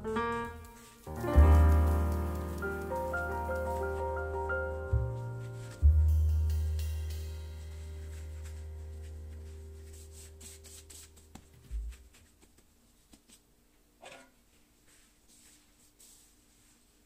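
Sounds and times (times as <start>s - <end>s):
gloved hands shaping dough: 0.3s - 6.1s, 7.9s - 13.6s, 14.5s - 17.0s
low musical note: 1.1s - 11.0s.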